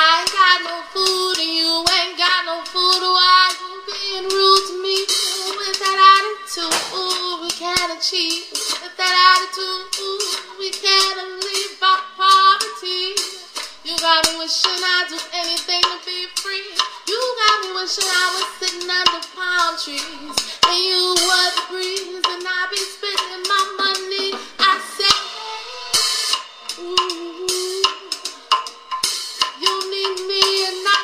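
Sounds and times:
light musical backing: 0.0s - 31.0s
woman singing high notes: 26.7s - 28.3s.

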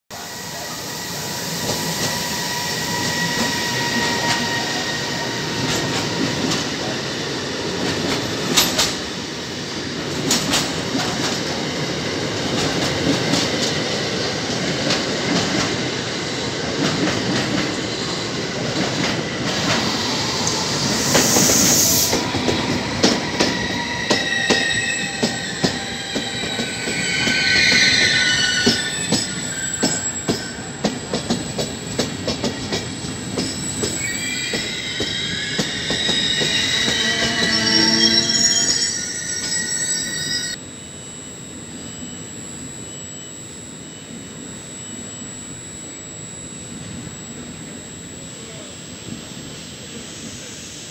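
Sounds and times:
train wheels rumbling on rail: 0.1s - 39.8s
high whine: 18.7s - 50.9s
wheel squealing: 33.8s - 40.6s.

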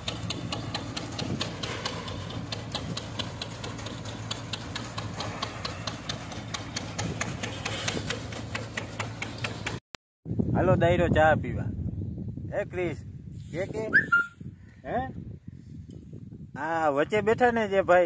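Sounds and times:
engine hum: 0.0s - 9.8s
regular mechanical clatter: 0.0s - 9.8s.

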